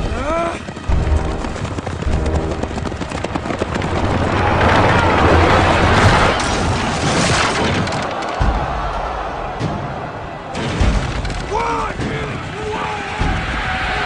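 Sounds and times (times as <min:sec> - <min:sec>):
galloping horse hooves: 0:00.0 - 0:09.5
chariot wheels rumbling over dirt: 0:00.0 - 0:09.6
heavy low thumping: 0:00.8 - 0:06.4, 0:08.4 - 0:11.3
loud rushing wash: 0:01.6 - 0:08.0.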